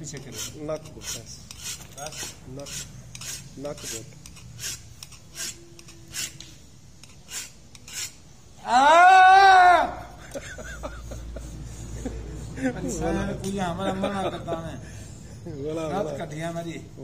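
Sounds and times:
file scraping a sickle blade: 0:00.0 - 0:08.4
man crying out: 0:08.6 - 0:10.3.

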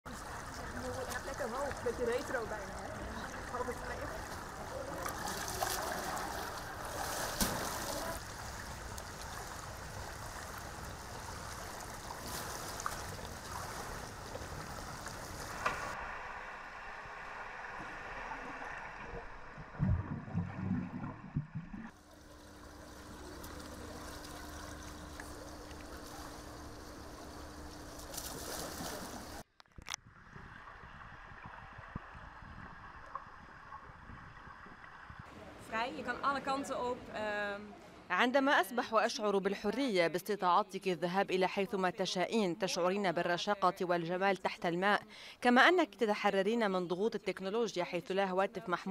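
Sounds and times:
pool water lapping and splashing: 0:00.1 - 0:29.4
steady low hum: 0:06.2 - 0:29.4
bubbles underwater: 0:18.5 - 0:26.6.

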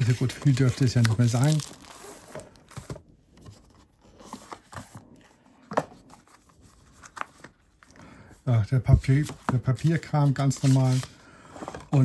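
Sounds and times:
packaging rustling: 0:00.0 - 0:03.0.

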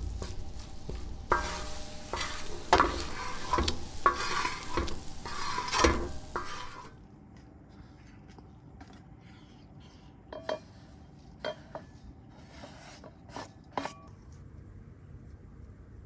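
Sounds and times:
light scraping: 0:00.0 - 0:07.0.

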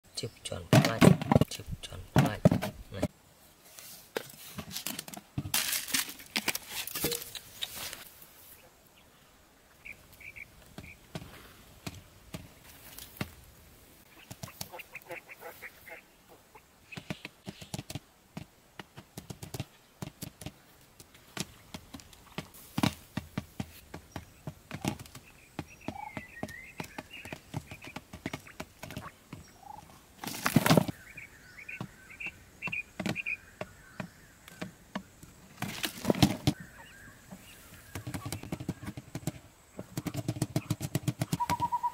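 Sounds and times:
quail pecking seeds: 0:05.6 - 0:08.6, 0:09.8 - 0:41.9
high chirping calls: 0:09.8 - 0:11.0, 0:25.2 - 0:30.0, 0:30.9 - 0:34.4, 0:41.3 - 0:41.9.

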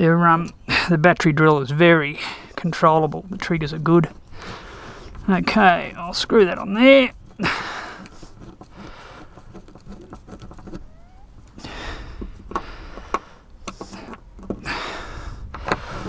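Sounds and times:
clicks and scraping handling noise: 0:00.3 - 0:16.0.

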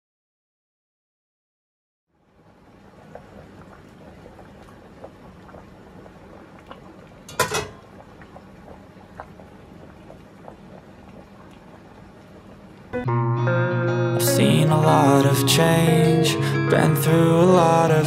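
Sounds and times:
pot boiling and bubbling: 0:02.1 - 0:13.0
metal kitchenware clattering: 0:07.3 - 0:07.8.

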